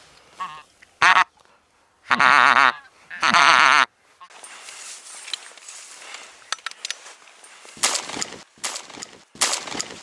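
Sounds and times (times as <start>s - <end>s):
faint steady hiss: 0.0s - 2.1s
crunching footsteps: 4.0s - 10.0s.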